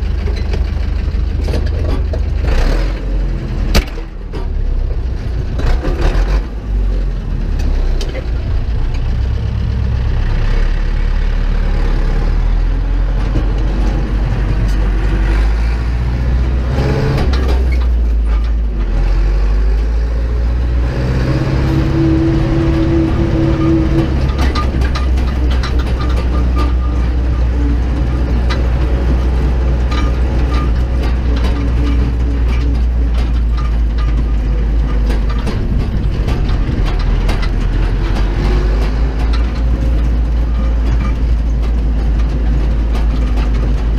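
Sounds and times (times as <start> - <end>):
cab clattering and rattling: 0.0 - 10.6, 12.6 - 43.9
tractor diesel engine hum: 0.0 - 43.9.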